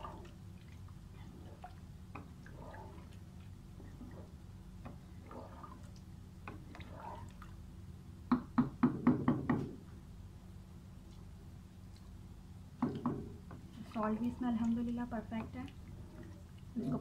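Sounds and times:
steady low hum: 0:00.0 - 0:08.9, 0:09.6 - 0:17.0
spatula stirring rice in pot: 0:06.5 - 0:07.4.

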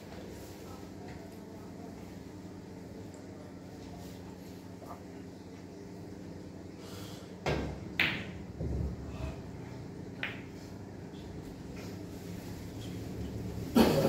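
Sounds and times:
steady background hum: 0:00.0 - 0:14.0
pool balls knocking: 0:07.4 - 0:09.0, 0:10.2 - 0:10.6.

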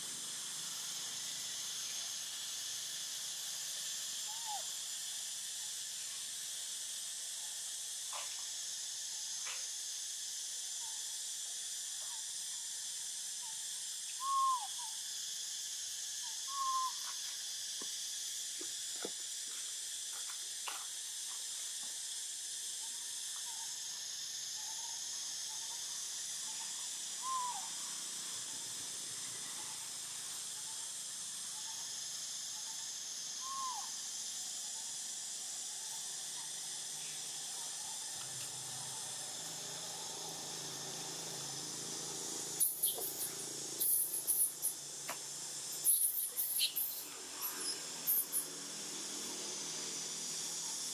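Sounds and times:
high insect chorus: 0:00.0 - 0:50.9
hoot-like animal calls: 0:04.2 - 0:04.7, 0:14.2 - 0:15.0, 0:16.5 - 0:17.0, 0:27.2 - 0:27.8, 0:33.4 - 0:33.9.

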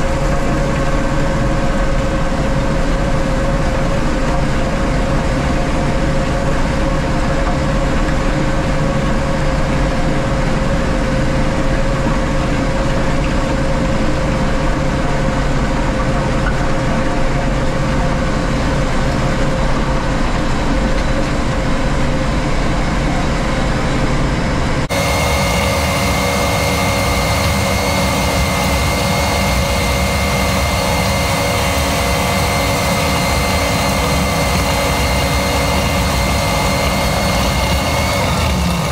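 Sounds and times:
high-pitched whine: 0:22.4 - 0:38.9
diesel engine running under load: 0:24.9 - 0:38.9.

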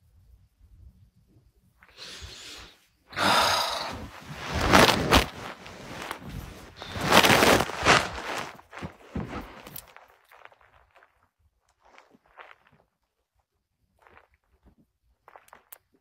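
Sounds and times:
woman breathing heavily and sighing: 0:02.0 - 0:08.5.

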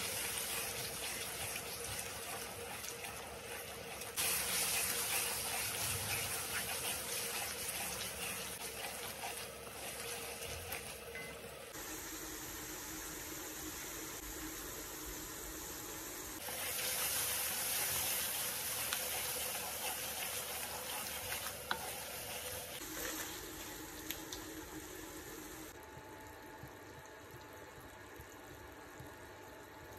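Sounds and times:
wooden spoon stirring: 0:00.0 - 0:11.4, 0:19.1 - 0:23.4
curry sizzling in a pan: 0:00.0 - 0:25.8.

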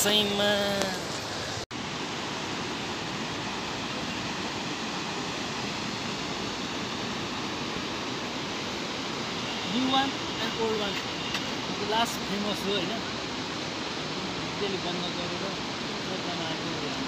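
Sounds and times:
steady rushing noise: 0:00.0 - 0:17.0.

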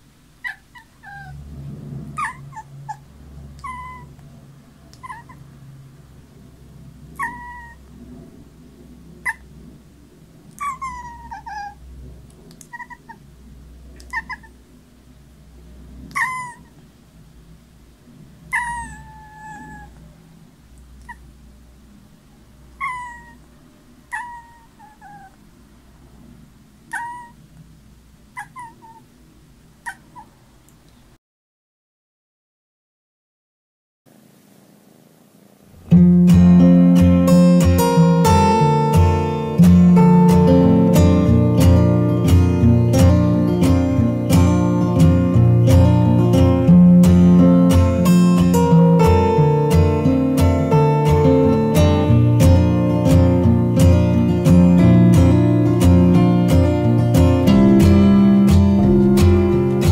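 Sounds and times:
kitten meowing: 0:00.4 - 0:01.4, 0:02.2 - 0:03.0, 0:03.6 - 0:04.2, 0:04.9 - 0:05.4, 0:07.2 - 0:07.8, 0:09.2 - 0:09.4, 0:10.5 - 0:11.8, 0:12.5 - 0:13.2, 0:14.0 - 0:14.6, 0:16.1 - 0:16.8, 0:18.5 - 0:20.0, 0:21.0 - 0:21.2, 0:22.8 - 0:23.4, 0:24.1 - 0:25.4, 0:26.9 - 0:27.4, 0:28.4 - 0:29.1, 0:29.8 - 0:30.3.

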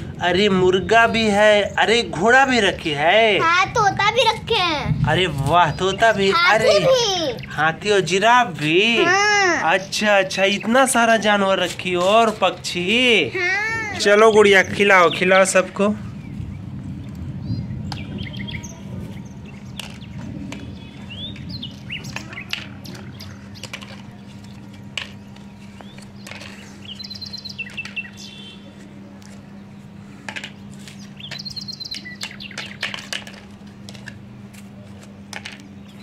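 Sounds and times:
steady low hum: 0:00.0 - 0:36.0
small birds chirping: 0:02.8 - 0:11.4, 0:12.8 - 0:32.9, 0:35.6 - 0:36.0
plastic plates clicking on concrete: 0:22.0 - 0:26.6.

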